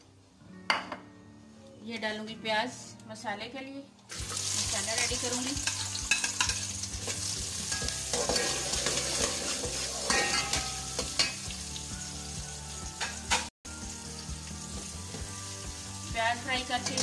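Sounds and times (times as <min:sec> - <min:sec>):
onions sizzling in hot oil: 0:04.1 - 0:17.0
ladle scraping a metal pot: 0:07.7 - 0:11.4.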